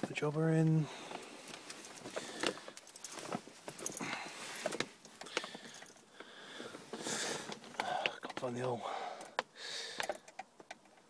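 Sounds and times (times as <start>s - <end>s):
car keys jingling: 1.0s - 6.1s.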